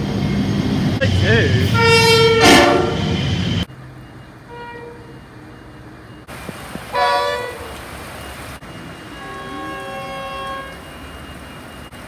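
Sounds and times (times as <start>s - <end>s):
freight train rumbling past: 0.0s - 12.0s
locomotive horn: 1.7s - 3.2s, 4.4s - 5.4s, 6.9s - 7.8s, 8.8s - 10.9s.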